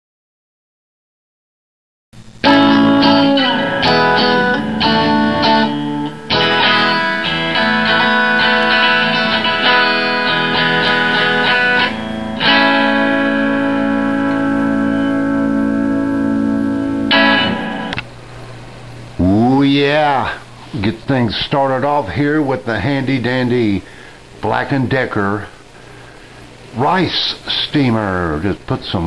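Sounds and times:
electric guitar chords strummed: 2.2s - 19.1s.

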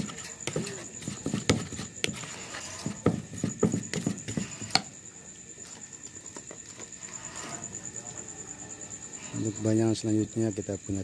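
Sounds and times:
plastic paddle scraping a bowl: 0.0s - 4.9s
high insect trill: 0.0s - 11.0s.

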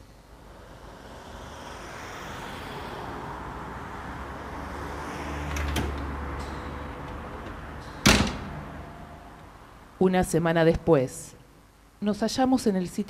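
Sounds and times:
low rumble: 0.0s - 5.5s
rushing noise: 0.0s - 10.0s.

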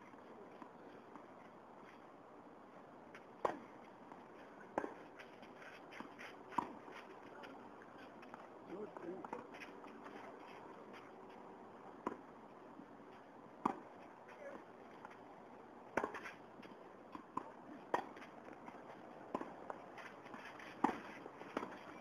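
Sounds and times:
tennis ball bouncing: 3.4s - 5.3s, 5.9s - 7.0s, 11.8s - 12.3s, 13.6s - 15.2s, 15.9s - 22.0s.

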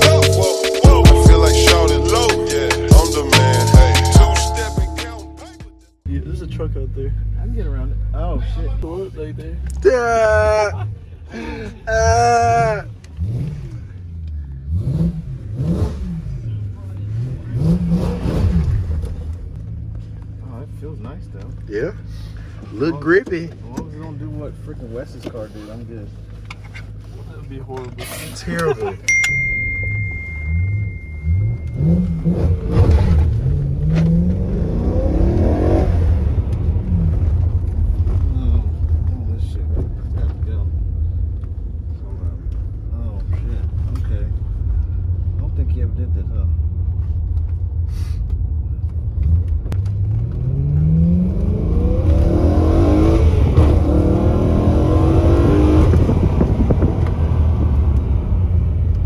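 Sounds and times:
car engine accelerating hard: 11.9s - 28.8s, 30.0s - 59.0s.

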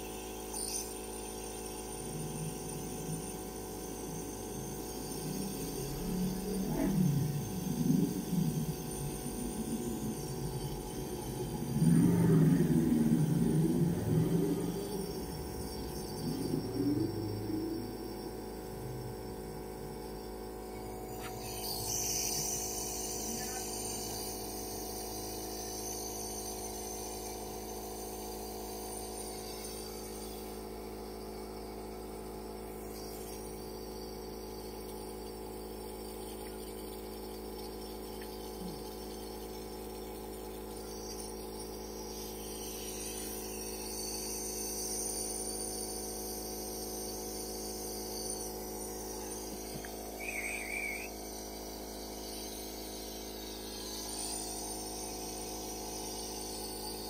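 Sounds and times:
compressor humming: 0.0s - 57.0s
high warbling sound: 4.0s - 18.3s.

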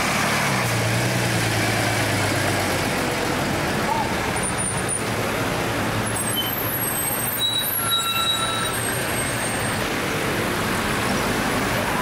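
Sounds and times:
bus engine rumbling: 0.0s - 12.0s
city traffic noise: 0.0s - 12.0s
faint high squeaks: 6.2s - 9.6s.

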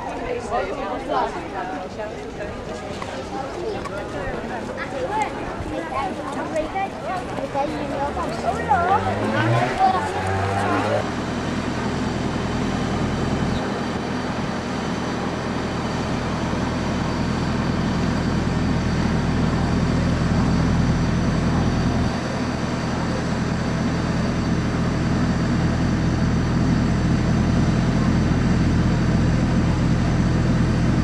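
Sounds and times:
low mechanical rumble and hum: 7.5s - 31.0s.

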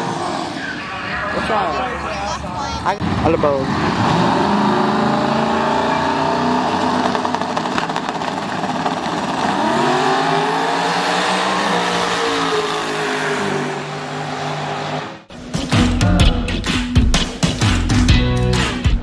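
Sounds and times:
race car engine running: 3.7s - 12.1s.

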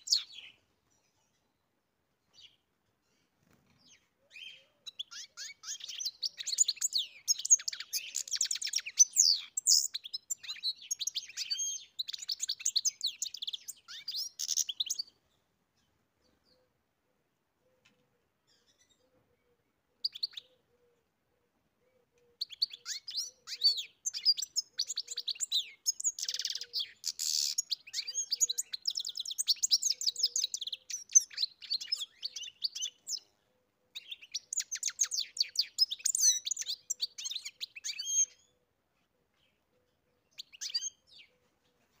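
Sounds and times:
goldfinch singing: 0.0s - 0.6s, 3.8s - 15.2s, 22.4s - 33.3s, 33.9s - 38.5s, 40.3s - 41.3s.

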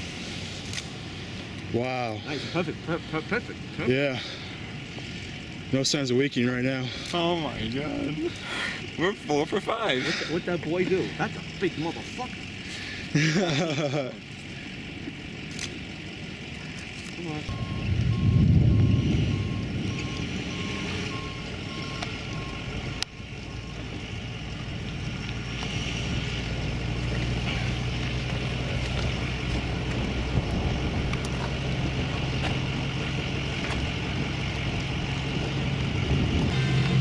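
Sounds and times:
vehicle engine idling: 0.0s - 37.0s
wind noise: 17.5s - 21.2s, 29.2s - 37.0s
electronic beeps: 17.5s - 23.9s.

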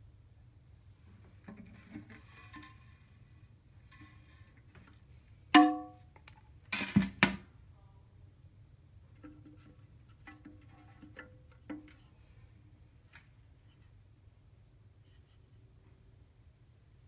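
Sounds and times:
ringing metal clink: 5.6s - 6.0s.

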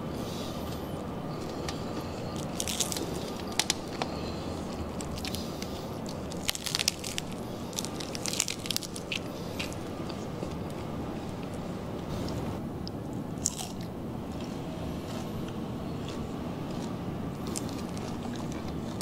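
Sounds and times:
steady background noise: 0.0s - 19.0s
crispy pork skin crackling: 1.4s - 10.8s.

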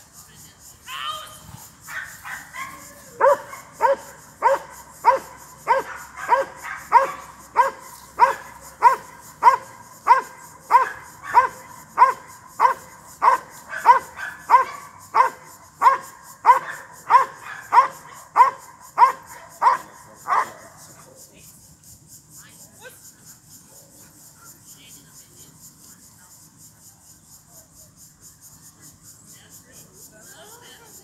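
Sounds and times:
dog barking: 1.9s - 20.9s.

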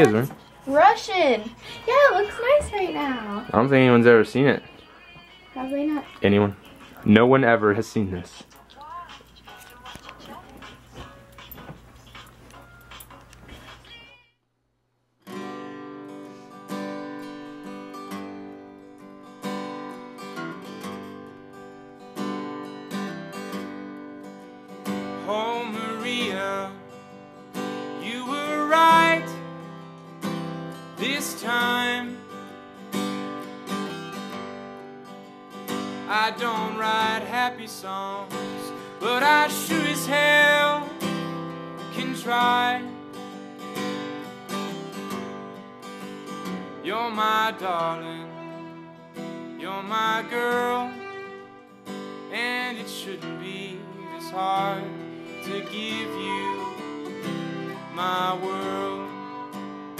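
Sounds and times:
strummed acoustic guitar: 0.0s - 8.5s, 15.2s - 59.9s
person singing: 2.8s - 7.1s, 8.4s - 11.7s, 13.5s - 14.3s, 25.2s - 26.8s, 27.9s - 29.4s, 31.0s - 32.2s, 36.1s - 41.2s, 41.8s - 43.0s, 46.8s - 49.0s, 49.6s - 51.4s, 52.3s - 59.8s.

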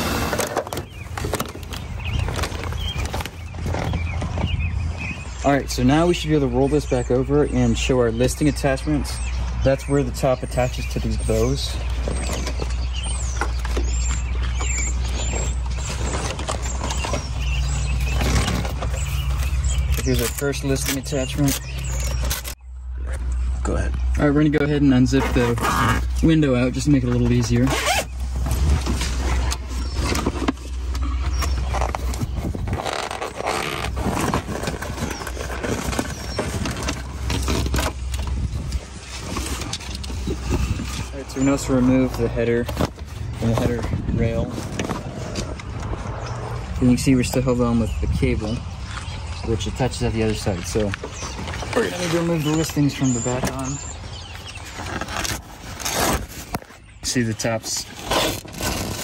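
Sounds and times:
wind rumble on microphone: 0.9s - 5.4s, 28.4s - 49.7s
fabric crinkling and frame creaking: 27.2s - 43.8s.

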